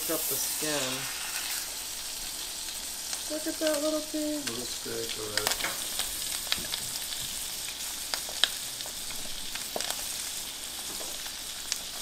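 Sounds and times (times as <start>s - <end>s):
fish sizzling in butter: 0.0s - 12.0s
butter spattering pops: 4.4s - 10.2s.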